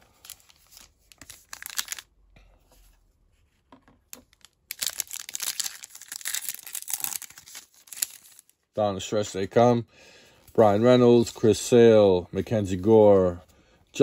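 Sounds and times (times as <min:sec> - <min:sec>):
wrapper tearing and crinkling: 0:00.2 - 0:02.1, 0:04.2 - 0:08.6.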